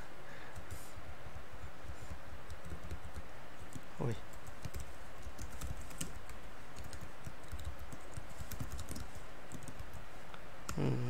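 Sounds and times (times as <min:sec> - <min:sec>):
steady background noise: 0:00.0 - 0:11.0
keyboard typing clicks: 0:01.8 - 0:10.0.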